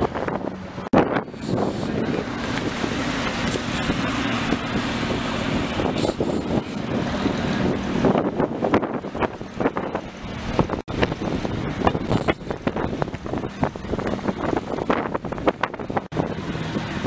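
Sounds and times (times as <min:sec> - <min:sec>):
cars driving slowly past: 0:00.0 - 0:17.0
wind buffeting microphone: 0:00.0 - 0:17.0.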